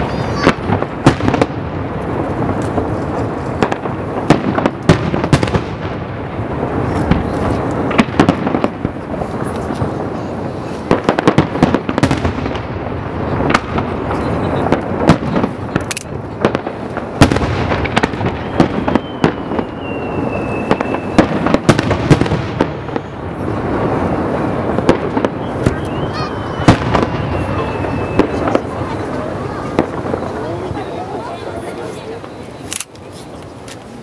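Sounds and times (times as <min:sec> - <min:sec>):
firework whistle sliding down: 0:18.8 - 0:21.3, 0:25.3 - 0:28.5.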